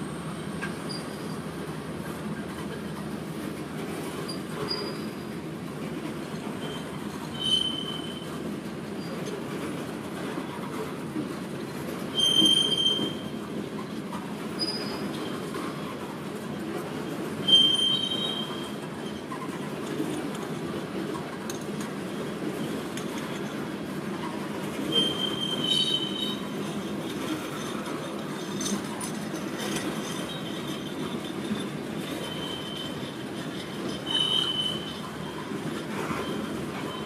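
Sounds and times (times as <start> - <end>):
train wheels rumbling on rails: 0.0 - 37.0
high-pitched wheel squeals: 0.6 - 1.5, 4.3 - 5.2, 6.6 - 8.4, 12.1 - 13.4, 14.6 - 15.4, 17.4 - 19.6, 24.8 - 26.6, 29.9 - 37.0.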